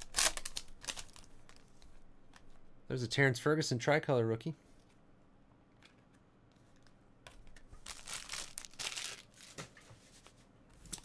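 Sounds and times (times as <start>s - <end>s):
plastic wrapper crinkling and tearing: 0.0s - 1.8s, 7.8s - 9.6s.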